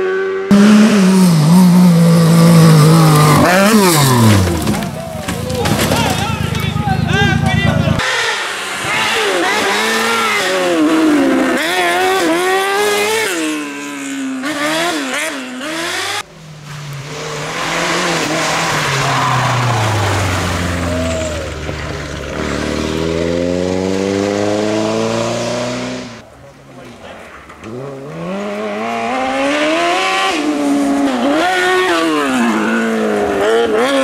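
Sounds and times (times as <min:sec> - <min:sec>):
buggy engine revving high: 0:00.0 - 0:26.2, 0:27.7 - 0:34.0
rally car engine accelerating: 0:00.0 - 0:26.2.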